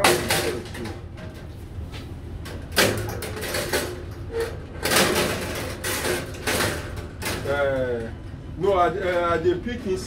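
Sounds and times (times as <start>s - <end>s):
metal grills knocking and clattering: 0.0s - 1.6s, 2.4s - 8.1s
steady low hum: 0.0s - 10.0s.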